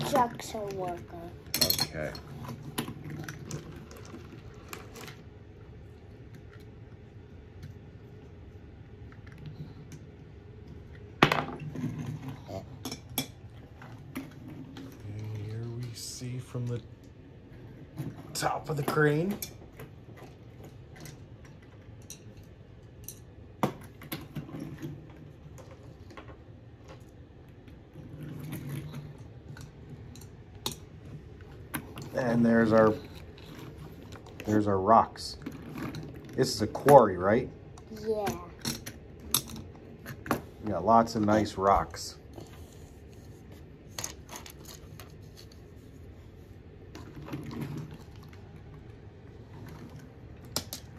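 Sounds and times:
quiet room noise: 0.0 - 50.9
toy trucks and pebbles clattering: 31.8 - 37.5, 43.9 - 45.8.

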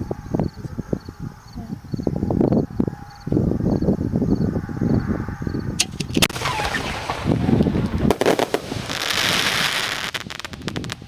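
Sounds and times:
fireworks bangs: 5.8 - 11.0
fireworks crackling hiss: 6.0 - 11.0.

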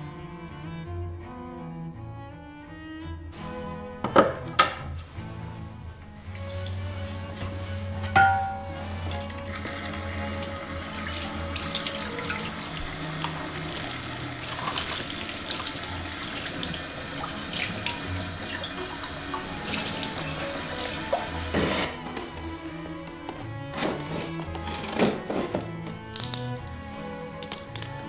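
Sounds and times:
glass and colander clinking: 8.2 - 9.4
faucet running into steel sink: 9.4 - 21.6.

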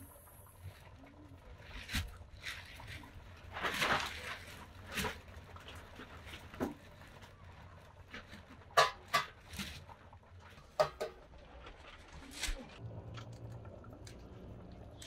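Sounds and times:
wood fire popping: 0.0 - 15.0
rustling scrape: 1.6 - 8.6.

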